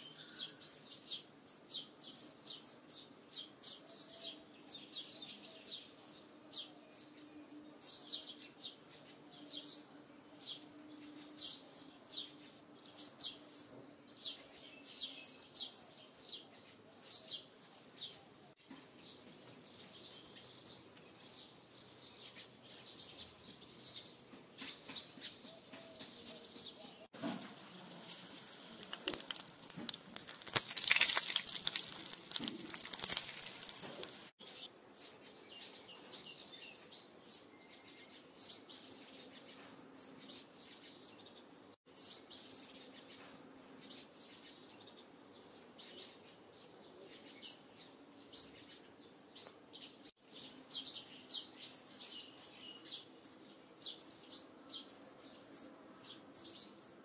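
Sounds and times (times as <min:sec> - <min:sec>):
small birds chirping: 0:00.0 - 0:57.0
hot oil sizzling: 0:27.9 - 0:34.3.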